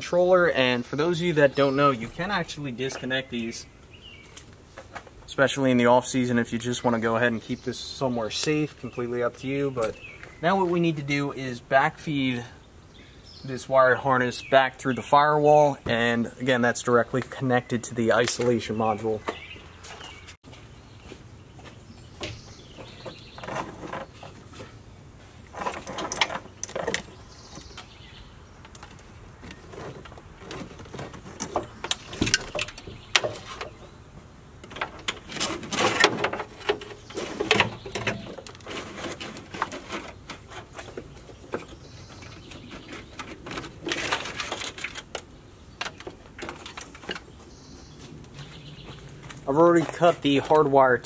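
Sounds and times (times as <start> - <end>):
wiring harness rustling and scraping: 22.3 - 28.0, 28.6 - 34.0, 34.6 - 50.8.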